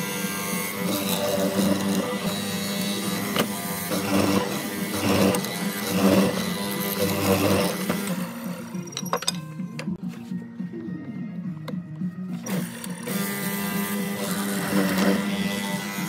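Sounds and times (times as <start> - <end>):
mortiser chisel cutting wood: 0.0 - 8.8, 12.4 - 16.0
steady motor hum: 0.0 - 8.8, 11.3 - 16.0.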